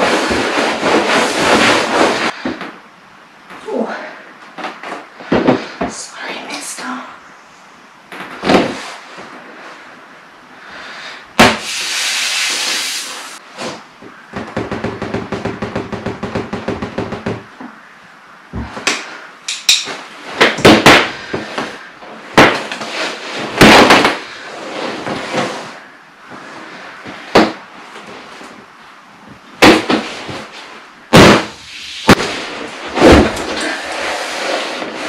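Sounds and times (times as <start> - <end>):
vinyl rustling: 0.0 - 2.8.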